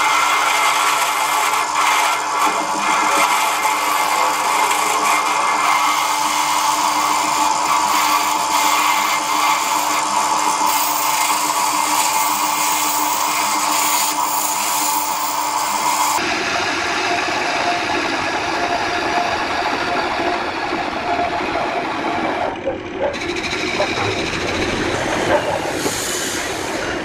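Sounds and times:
turning tool cutting wood: 0:00.0 - 0:27.0
wood lathe humming: 0:00.0 - 0:27.0.

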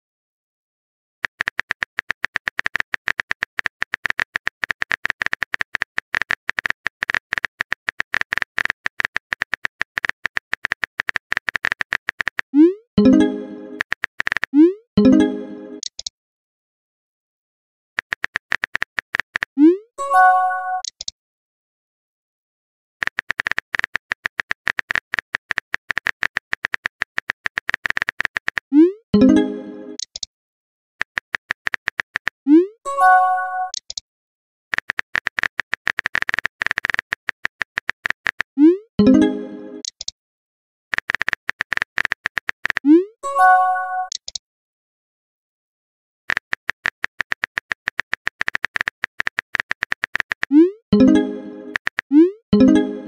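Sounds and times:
phone keyboard typing clicks: 0:01.2 - 0:14.6, 0:18.0 - 0:19.6, 0:20.8 - 0:21.1, 0:23.0 - 0:30.3, 0:31.0 - 0:32.4, 0:33.6 - 0:34.0, 0:34.7 - 0:39.2, 0:39.8 - 0:40.1, 0:40.9 - 0:43.0, 0:44.0 - 0:44.4, 0:46.3 - 0:52.9.

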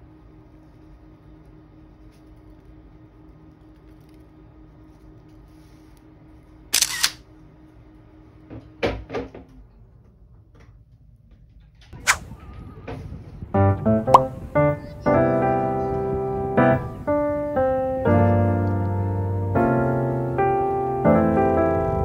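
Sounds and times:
faint steady hum: 0:00.0 - 0:08.7
sharp click: 0:06.8 - 0:07.2, 0:12.0 - 0:12.2.

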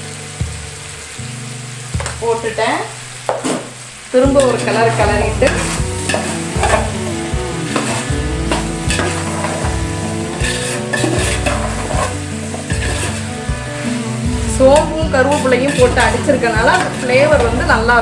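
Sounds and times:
oil sizzling: 0:00.0 - 0:18.0
metal spoon scraping a pot: 0:10.3 - 0:13.4, 0:14.7 - 0:17.5.

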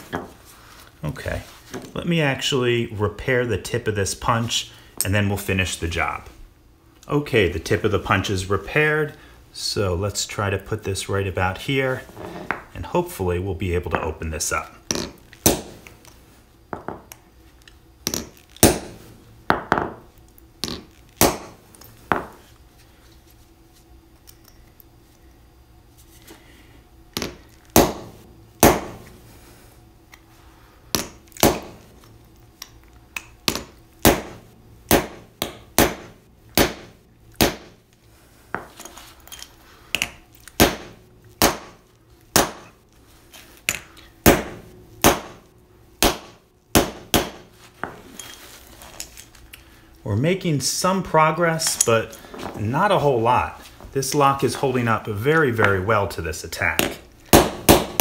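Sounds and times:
hammer striking steel punch: 0:18.1 - 0:19.9, 0:27.2 - 0:29.1, 0:33.5 - 0:37.8, 0:40.0 - 0:42.7, 0:43.7 - 0:47.5, 0:56.8 - 0:58.0.

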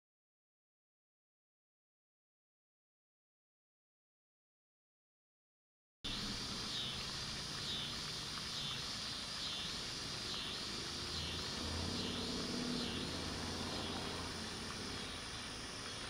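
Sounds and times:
high-pitched insect chorus: 0:06.1 - 0:16.0
low engine drone: 0:06.1 - 0:16.0.

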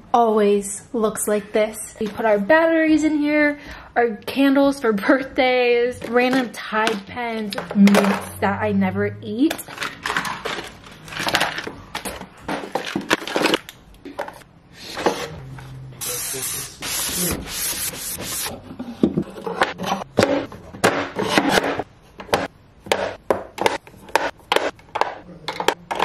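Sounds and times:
small objects clattering: 0:09.5 - 0:14.4.

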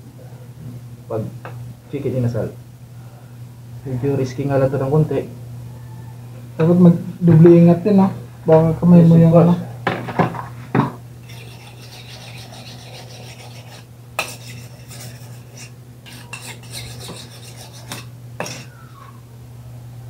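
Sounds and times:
steady low hum: 0:00.0 - 0:20.0
knife scraping and knocking on cutting board: 0:10.8 - 0:18.7
dishes clattering: 0:15.6 - 0:18.7.

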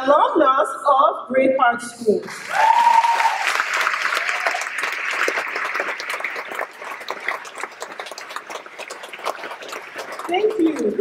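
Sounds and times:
audience applauding: 0:02.3 - 0:11.0
cheering whoop: 0:02.4 - 0:04.8.

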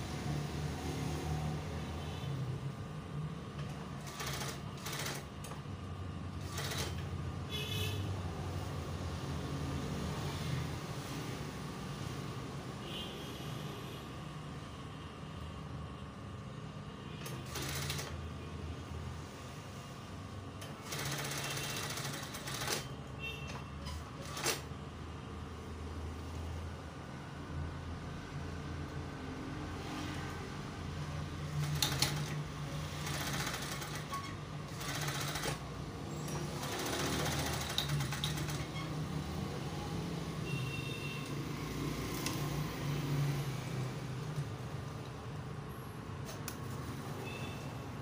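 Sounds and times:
sewing machine motor humming: 0:04.0 - 0:05.3, 0:06.4 - 0:07.1, 0:17.2 - 0:18.2, 0:20.6 - 0:22.9, 0:31.5 - 0:38.9.

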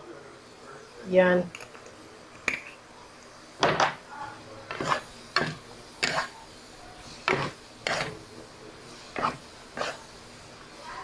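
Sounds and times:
wooden spatula scraping a pan: 0:04.7 - 0:06.4, 0:07.0 - 0:10.2.

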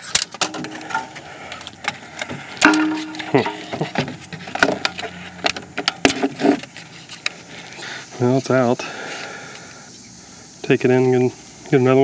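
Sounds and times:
metallic clinks and knocks: 0:02.6 - 0:05.1.

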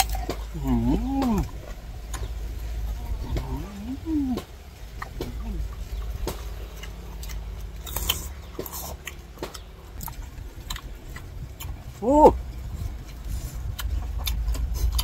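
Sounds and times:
people chewing crisp fruit: 0:00.0 - 0:15.0.

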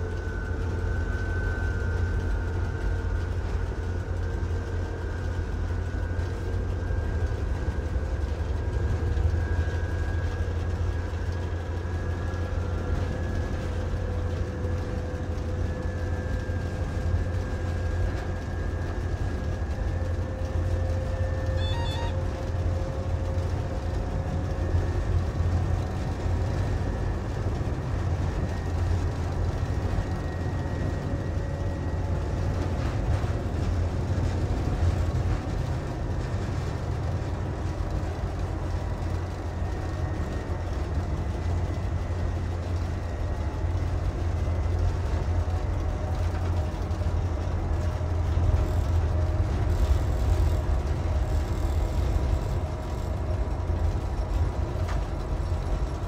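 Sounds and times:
low engine rumble: 0:00.0 - 0:56.0
wheels on rail: 0:20.1 - 0:23.9, 0:43.7 - 0:56.0.

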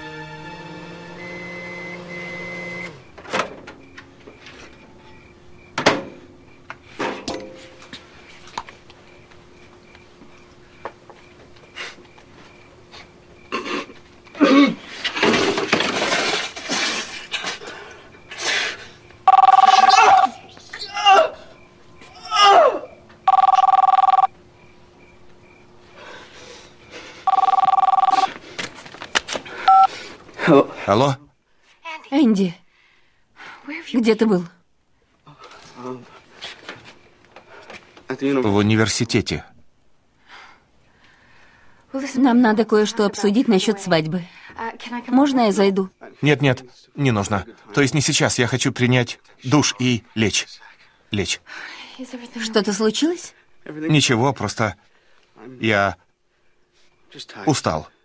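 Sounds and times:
held music chord: 0:00.0 - 0:02.9
telephone bell ringing: 0:19.3 - 0:20.3, 0:23.3 - 0:24.3, 0:27.3 - 0:28.3, 0:29.7 - 0:29.9.

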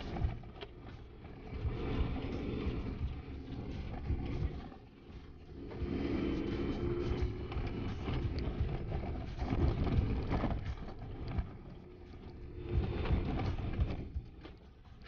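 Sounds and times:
engine and tyre rumble: 0:00.0 - 0:15.0
knocks and rattles over bumps: 0:00.0 - 0:15.0.

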